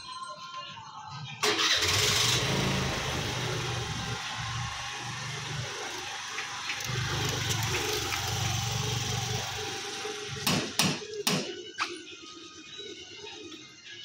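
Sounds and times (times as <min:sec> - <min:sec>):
scooter engine running: 0:01.6 - 0:10.5
sharp knocks: 0:10.4 - 0:11.6.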